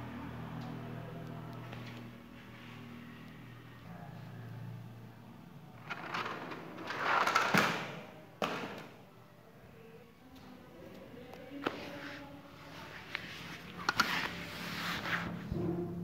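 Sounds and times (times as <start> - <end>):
toy bus rolling on foam mat: 5.8 - 7.5.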